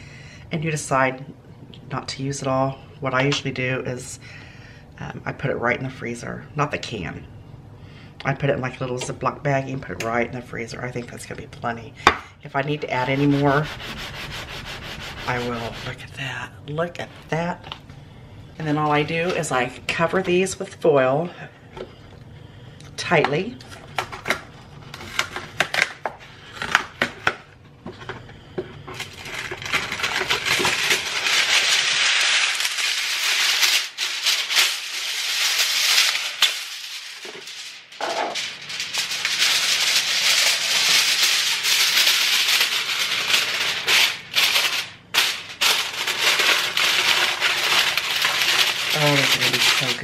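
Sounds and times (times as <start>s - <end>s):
aluminium foil crinkling: 12.9s - 16.1s, 24.2s - 27.0s, 28.8s - 50.0s.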